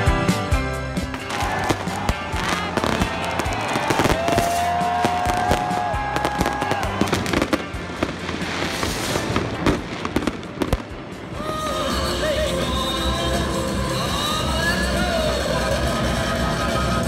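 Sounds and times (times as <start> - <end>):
background music: 0.0 - 17.0
fireworks bangs and crackles: 1.0 - 11.9.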